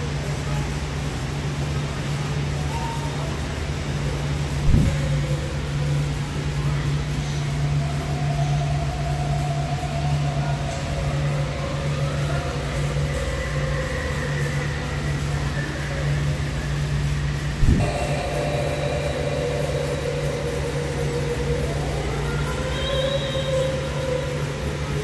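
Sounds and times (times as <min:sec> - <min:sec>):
blower fans humming: 0:00.0 - 0:25.0
short thump: 0:04.7 - 0:05.0.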